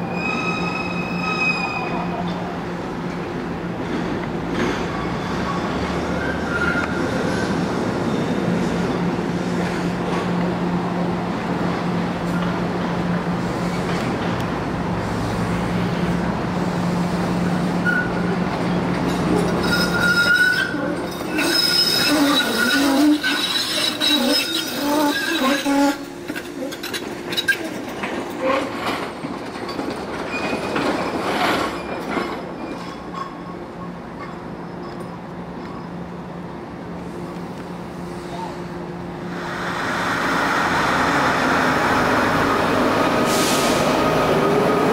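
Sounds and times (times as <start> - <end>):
streetcar humming: 0.0 - 44.9
wheels squealing on track: 4.8 - 8.4, 17.8 - 18.2, 19.3 - 27.8.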